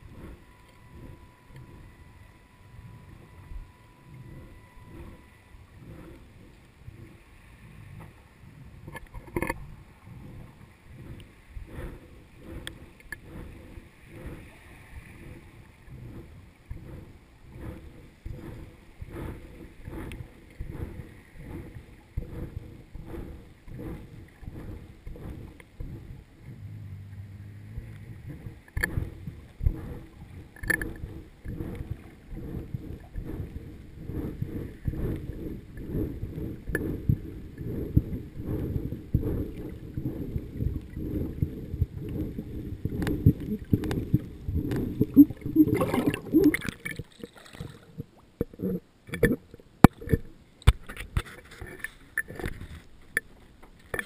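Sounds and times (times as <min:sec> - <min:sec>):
water rushing: 0:00.0 - 0:33.9, 0:39.2 - 0:51.0
muffled underwater thumps: 0:15.2 - 0:52.6.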